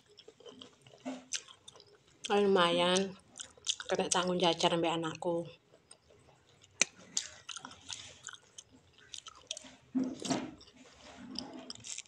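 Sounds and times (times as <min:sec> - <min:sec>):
wet chewing: 0:00.0 - 0:04.3, 0:05.5 - 0:12.0.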